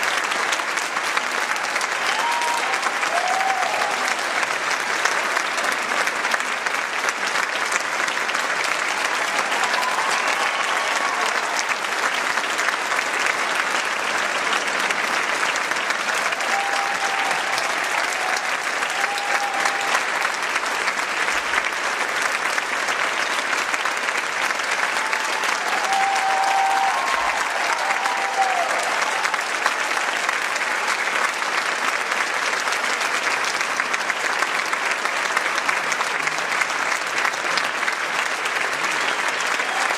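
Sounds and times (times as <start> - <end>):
audience applauding: 0.0 - 39.9.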